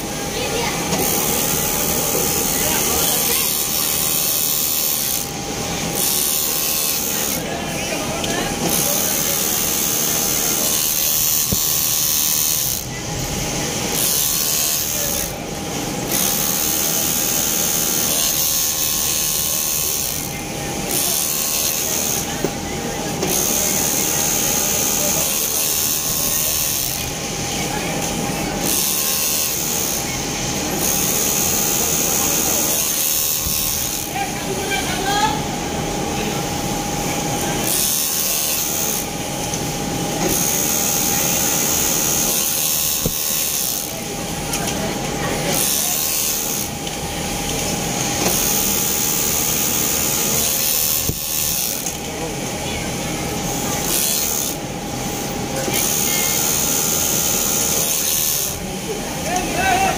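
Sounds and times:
steady workshop hum: 0.0s - 59.9s
overlock machine sewing: 8.6s - 22.5s, 40.2s - 46.8s, 47.5s - 52.5s, 53.3s - 54.6s.

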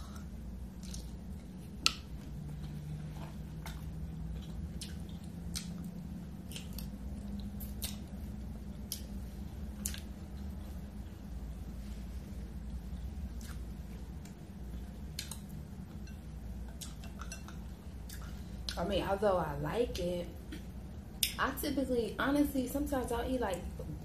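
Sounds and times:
wet chewing and lip smacks: 0.0s - 11.1s, 12.7s - 18.8s
faint low hum: 0.0s - 24.0s.

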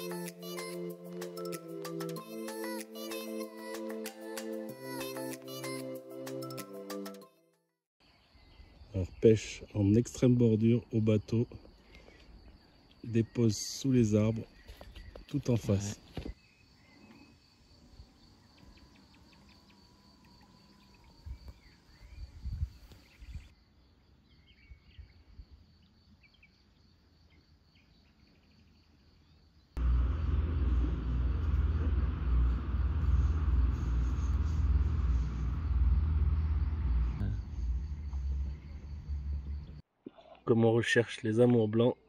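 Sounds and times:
faint bird chirps: 11.8s - 23.6s, 24.2s - 29.8s
high insect tone: 28.7s - 39.8s
loud low rumble: 29.8s - 39.8s.

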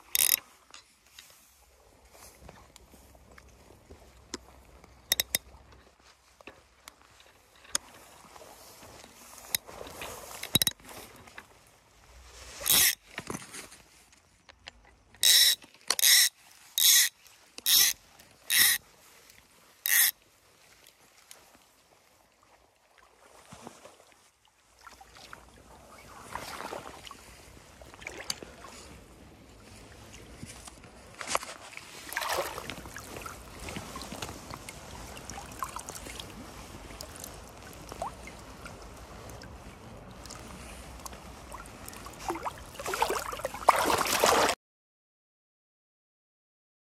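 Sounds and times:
water splashing and sloshing: 0.0s - 44.6s
fishing reel ratchet buzzing: 0.1s - 0.4s, 5.1s - 5.4s, 12.6s - 13.0s, 15.2s - 18.8s, 19.9s - 20.1s
water dripping and trickling: 32.2s - 39.5s.

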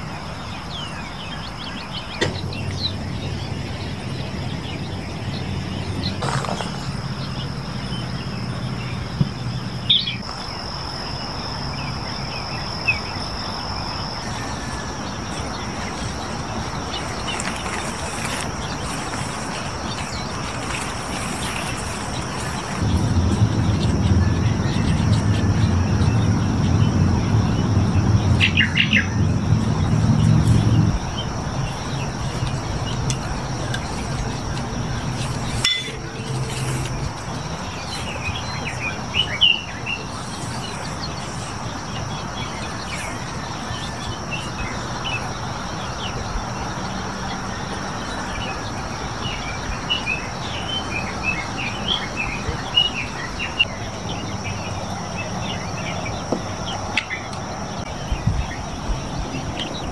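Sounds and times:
birds chirping and calling: 0.0s - 46.4s, 47.3s - 59.9s
steady high hum: 0.0s - 47.4s
low rumble: 22.4s - 44.7s.

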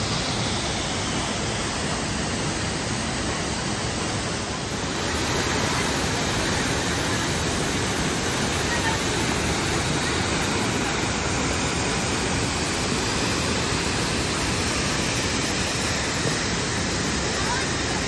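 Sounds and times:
river running over rapids: 0.0s - 18.0s
waterfall rushing: 0.0s - 18.0s.

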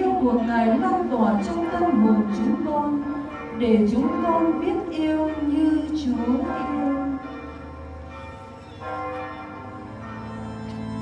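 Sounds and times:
church bells ringing: 0.0s - 11.0s
music: 9.8s - 11.0s.

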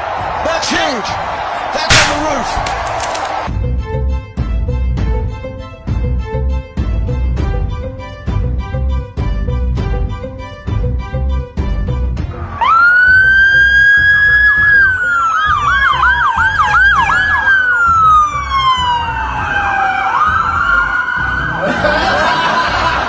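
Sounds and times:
siren wailing: 12.4s - 21.7s
siren yelp: 12.6s - 21.6s.

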